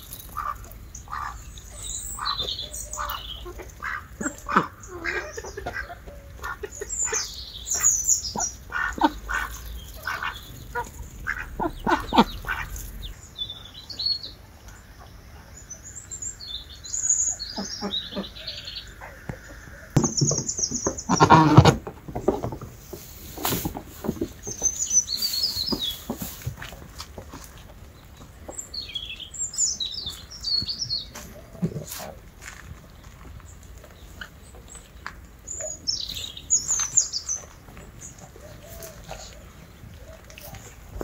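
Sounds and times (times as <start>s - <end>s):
harsh bird calls: 0.0s - 22.5s, 23.4s - 26.5s
birds chirping: 0.0s - 41.0s.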